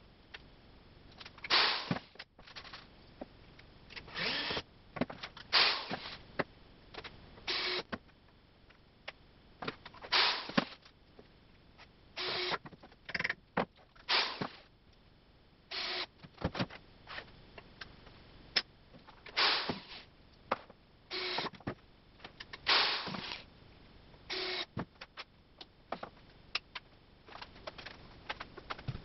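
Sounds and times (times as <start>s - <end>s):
cordless drill driving screws: 4.1s - 4.6s, 7.5s - 7.8s, 12.2s - 12.6s, 15.7s - 16.1s, 21.1s - 21.5s, 22.7s - 23.4s, 24.3s - 24.7s.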